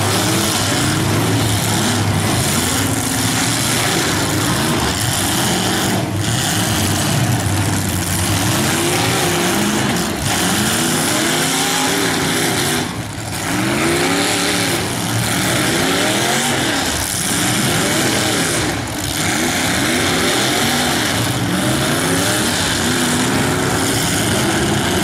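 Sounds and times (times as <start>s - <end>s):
car engines revving hard: 0.0s - 25.0s
exhaust noise din: 0.0s - 25.0s.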